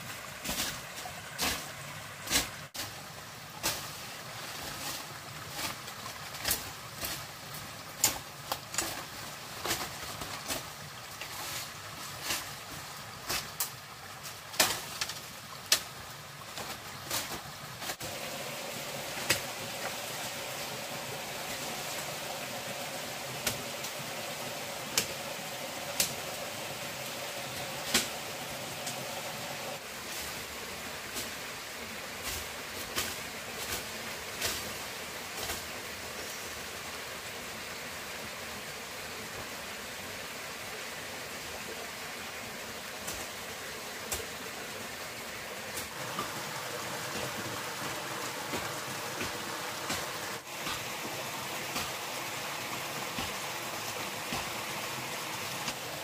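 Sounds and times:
stream rushing: 0:00.0 - 0:56.0.

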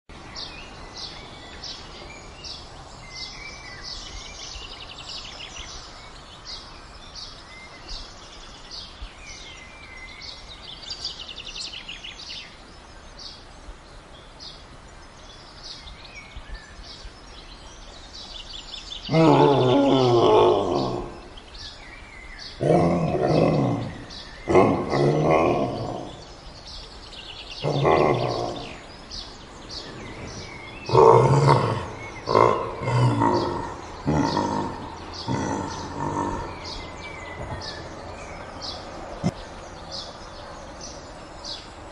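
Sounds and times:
birds chirping: 0:00.1 - 0:41.9
deep animal roars: 0:19.1 - 0:21.4, 0:22.6 - 0:26.3, 0:27.6 - 0:29.0, 0:29.7 - 0:39.4.

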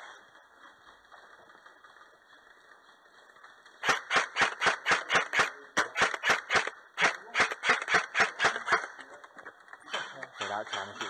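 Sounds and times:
rapid sharp knocks: 0:03.8 - 0:09.0, 0:09.9 - 0:11.0.

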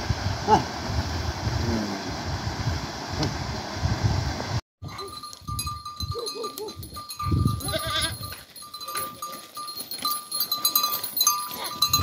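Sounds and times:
livestock bells clinking: 0:04.8 - 0:12.0
goats bleating: 0:07.6 - 0:08.2.

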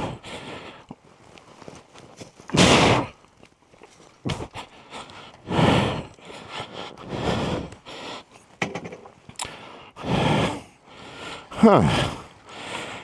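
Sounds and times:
man straining breaths and grunts: 0:00.0 - 0:01.1, 0:02.4 - 0:03.3, 0:04.2 - 0:13.0
motorcycle knocks: 0:08.6 - 0:09.0.

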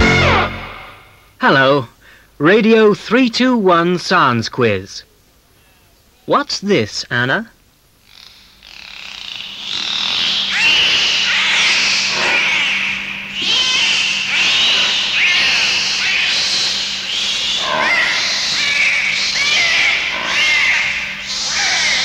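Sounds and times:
steady hiss: 0:03.8 - 0:22.0
dolphin whistles and squeaks: 0:09.7 - 0:22.0.

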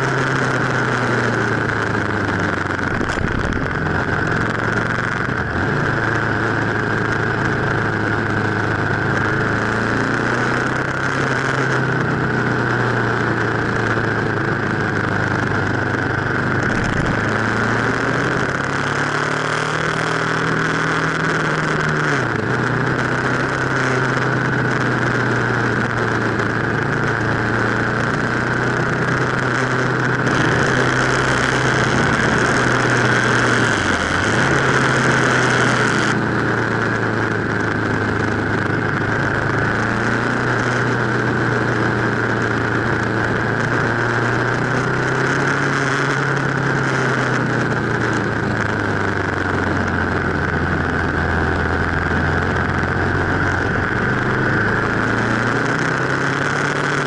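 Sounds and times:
wind noise: 0:00.0 - 0:11.3, 0:13.0 - 0:19.4
motorcycle engine running: 0:00.0 - 0:57.0.

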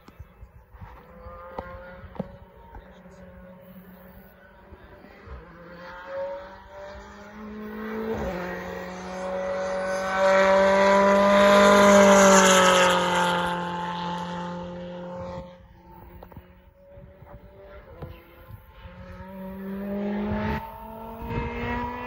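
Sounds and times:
race car engine passing: 0:00.7 - 0:22.0.

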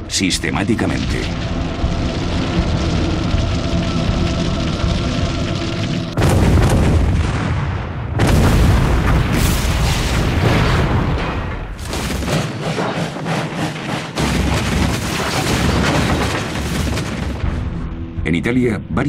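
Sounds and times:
loud explosions booming: 0:06.1 - 0:12.6.

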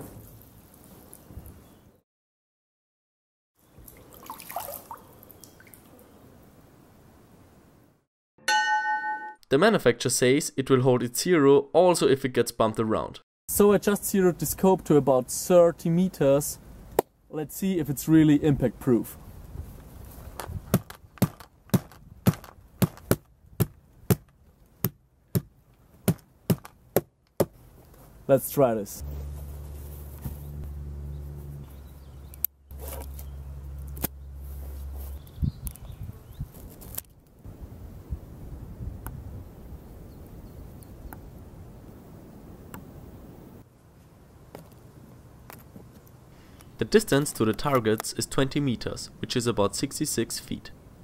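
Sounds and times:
water dripping and splashing: 0:03.8 - 0:06.0.

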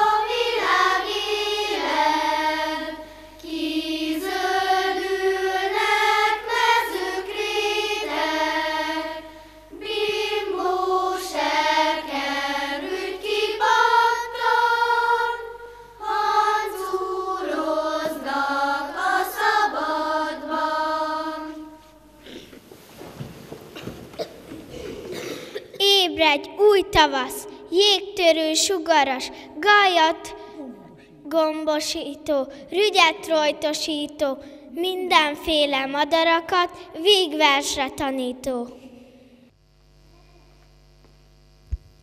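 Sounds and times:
children's choir singing: 0:00.0 - 0:22.4.

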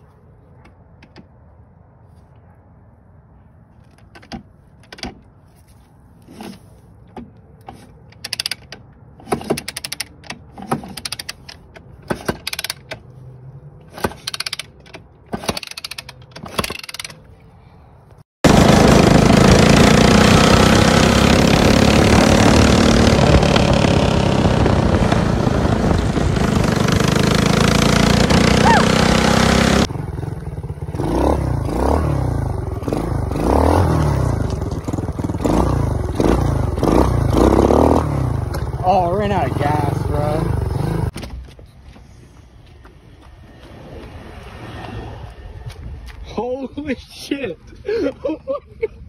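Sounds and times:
sharp clicks and knocks: 0:07.0 - 0:13.1
go-kart engine running: 0:18.4 - 0:41.1.

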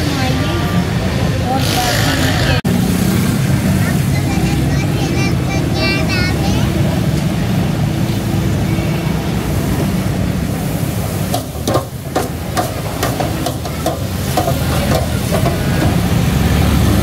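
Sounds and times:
wire basket clinking on fryer: 0:11.3 - 0:16.1.

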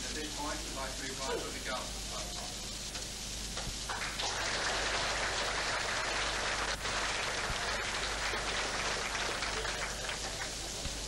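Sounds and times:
audience applauding: 0:03.9 - 0:11.0.

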